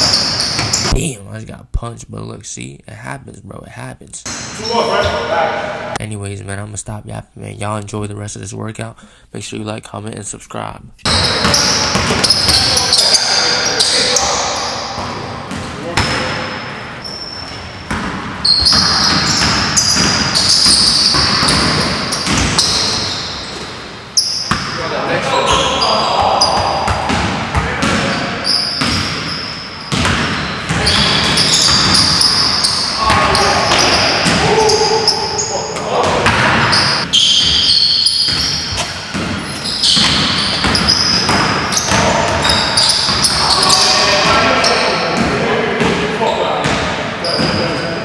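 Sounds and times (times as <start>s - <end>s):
basketball bouncing on wooden floor: 0.0s - 0.9s, 11.2s - 12.7s, 17.5s - 23.0s, 29.9s - 34.5s, 36.1s - 43.4s
sneakers squealing on court: 0.0s - 1.0s, 11.1s - 48.0s.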